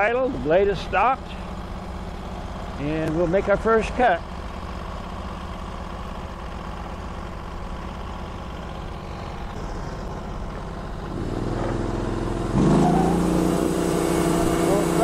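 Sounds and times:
sawmill gasoline engine revving: 8.8s - 15.0s.

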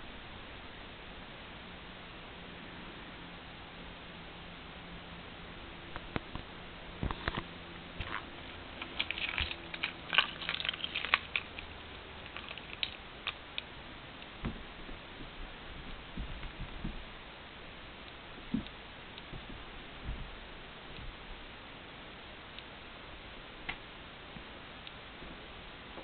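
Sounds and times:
kitten claws scratching: 8.0s - 13.4s.

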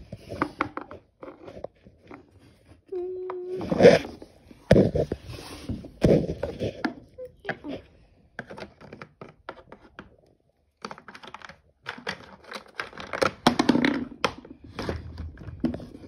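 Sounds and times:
hard plastic clicks and scrapes: 3.4s - 16.0s.

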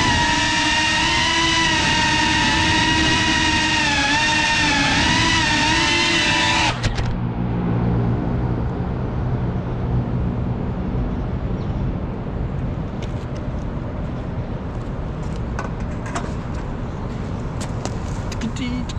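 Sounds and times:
drone motors whining: 0.0s - 8.8s
city traffic rumble: 0.0s - 18.9s.

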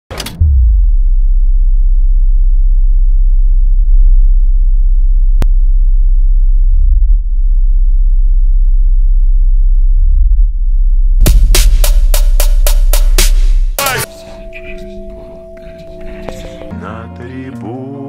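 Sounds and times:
deep bass drone: 0.2s - 13.8s.

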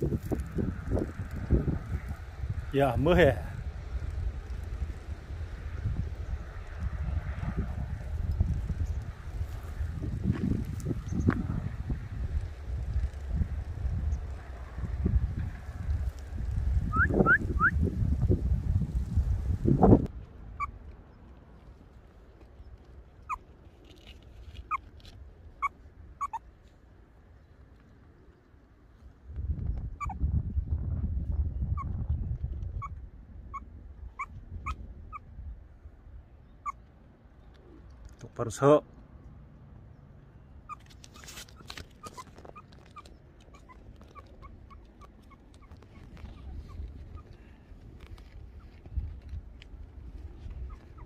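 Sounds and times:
meerkat chirping: 23.2s - 23.4s, 24.6s - 24.9s, 25.6s - 26.4s, 30.0s - 30.2s, 31.7s - 32.0s, 32.7s - 35.3s, 36.6s - 36.8s, 40.6s - 47.5s, 50.4s - 51.0s.

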